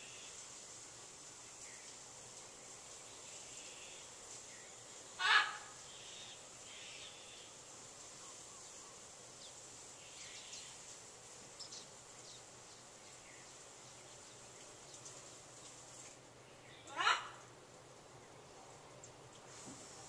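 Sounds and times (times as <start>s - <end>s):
steady high hiss: 0.0s - 20.0s
macaw squawk: 5.2s - 7.2s, 16.8s - 17.5s.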